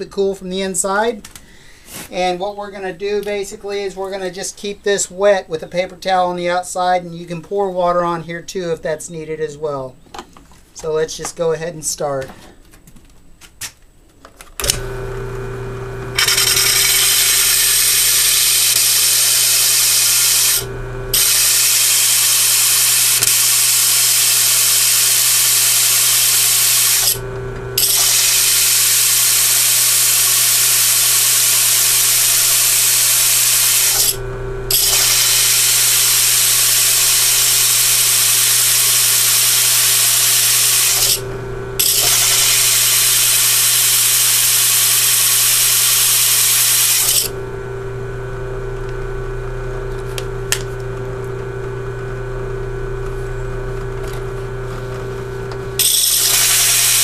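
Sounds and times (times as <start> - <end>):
drill press motor hum: 14.6 - 57.0
core bit grinding through tile: 16.2 - 27.2, 27.8 - 47.4, 55.8 - 57.0.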